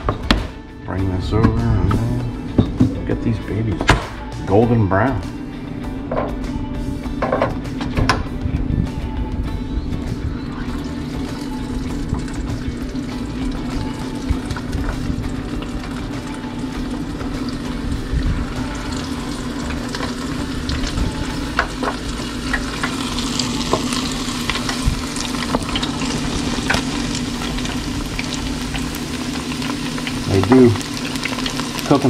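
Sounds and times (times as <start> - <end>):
food sizzling in hot oil: 10.2 - 32.0.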